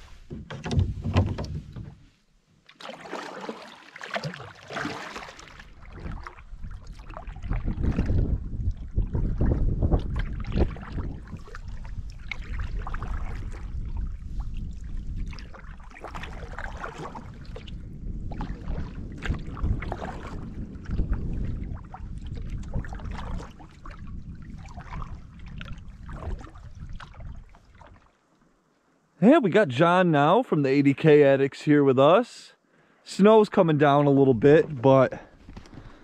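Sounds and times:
water lapping around canoe: 0.0s - 28.8s, 34.6s - 36.0s
wind buffeting microphone: 5.7s - 27.9s.

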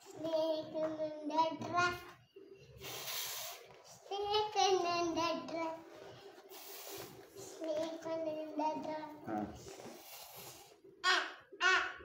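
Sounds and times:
drawn-out hissing voice: 2.8s - 4.0s, 6.4s - 7.6s, 9.2s - 12.0s.

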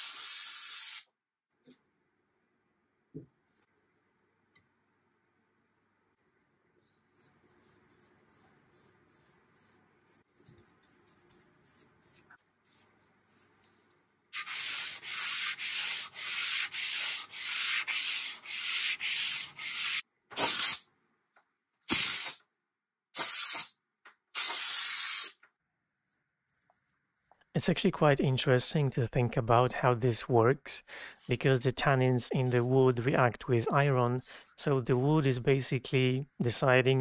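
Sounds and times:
brush strokes on wood: 32.3s - 33.3s.

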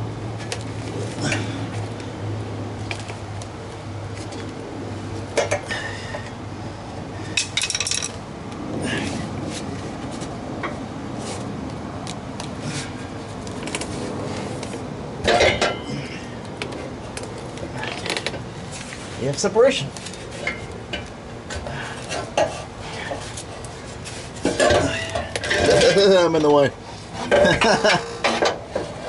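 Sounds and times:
exhaust pipe clanking and rattling: 13.6s - 19.4s, 20.1s - 29.0s.

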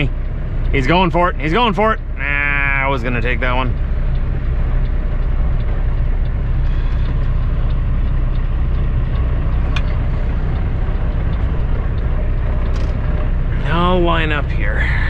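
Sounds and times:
diesel truck engine running: 0.0s - 15.0s
sharp click: 12.6s - 13.0s.

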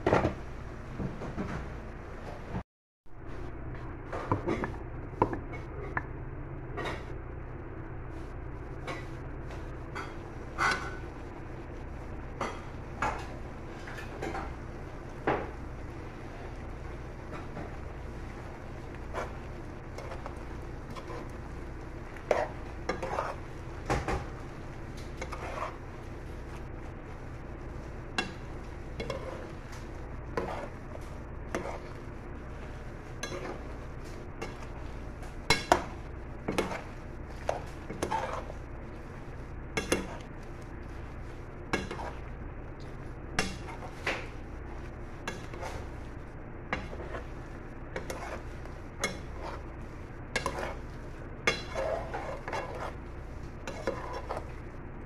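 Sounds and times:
low hum: 1.5s - 55.0s.

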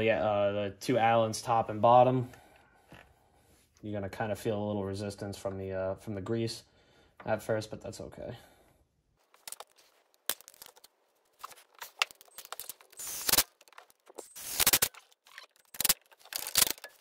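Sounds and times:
tool clicks: 12.0s - 17.0s.

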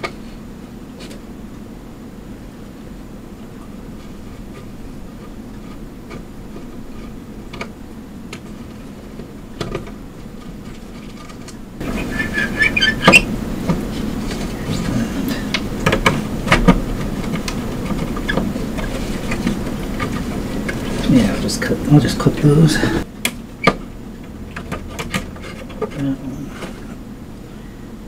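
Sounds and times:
handling knocks and clicks: 4.0s - 14.8s, 15.5s - 21.3s, 23.2s - 26.0s.

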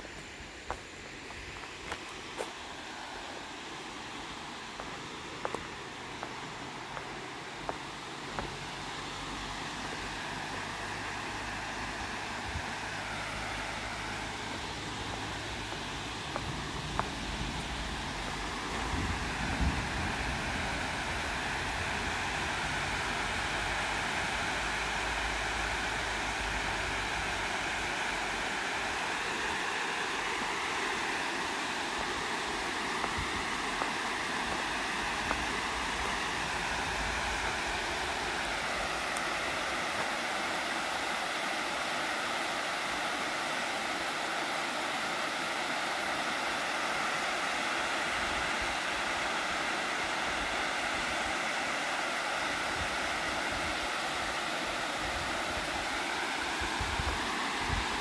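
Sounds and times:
water rushing over spillway: 0.0s - 58.0s.

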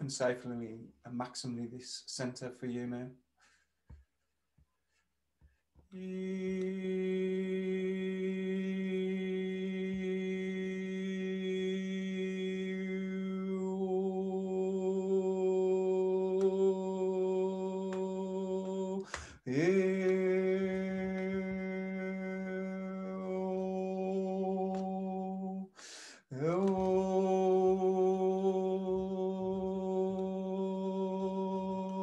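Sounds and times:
man breathing in: 3.4s - 3.9s, 19.0s - 19.5s, 25.7s - 26.3s.

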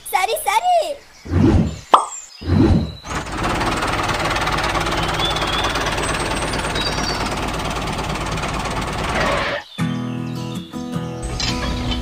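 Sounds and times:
small machine rattling: 3.0s - 9.4s.

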